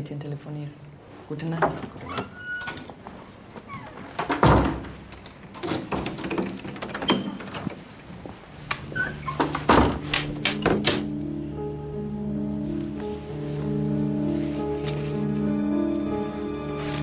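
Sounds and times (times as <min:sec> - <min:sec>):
door shutting with a thud: 0:04.2 - 0:05.0, 0:09.3 - 0:11.1.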